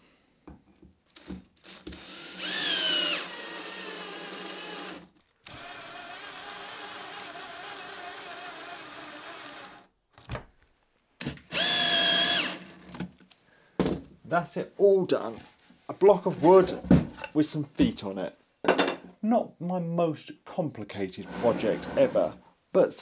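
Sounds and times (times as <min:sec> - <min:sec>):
drill motor whining: 0:01.6 - 0:09.9, 0:11.5 - 0:13.0.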